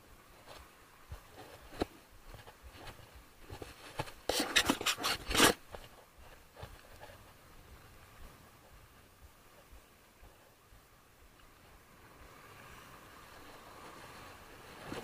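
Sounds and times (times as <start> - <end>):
rubbing scraping strokes: 3.6 - 7.2.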